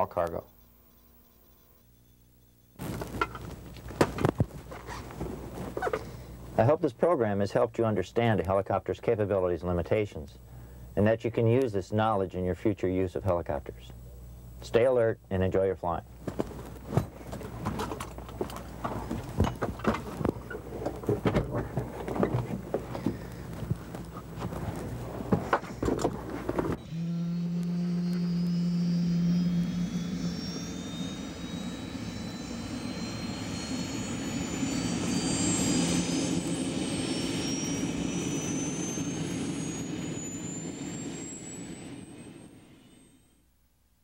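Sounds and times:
helicopter turbine engine whine: 17.0s - 43.4s.

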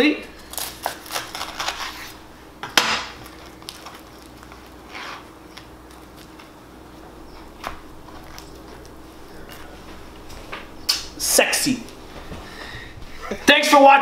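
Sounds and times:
faint steady hum: 0.0s - 14.0s
crisp bread rustling: 0.3s - 11.2s.

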